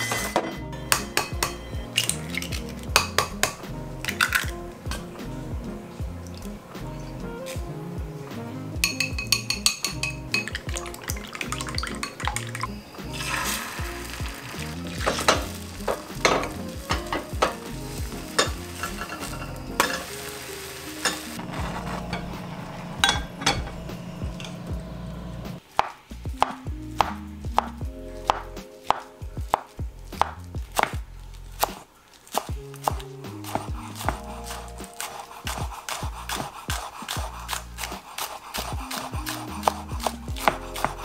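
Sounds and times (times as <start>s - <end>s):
cookware clinking: 0.0s - 5.1s, 8.8s - 13.6s, 14.6s - 17.7s, 18.3s - 20.2s, 21.0s - 22.4s, 23.0s - 24.6s
knife chopping on wooden board: 28.3s - 31.0s, 31.6s - 41.0s.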